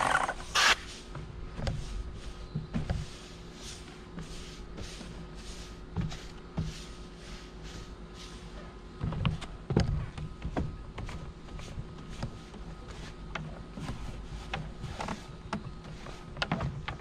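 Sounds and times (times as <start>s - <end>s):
brush bristles swishing: 1.8s - 8.6s.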